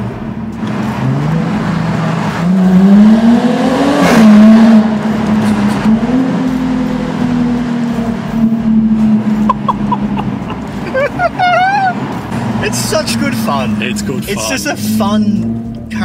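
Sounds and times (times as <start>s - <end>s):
car engine accelerating hard: 0.0s - 16.0s
exhaust crack at upshift: 4.0s - 14.2s.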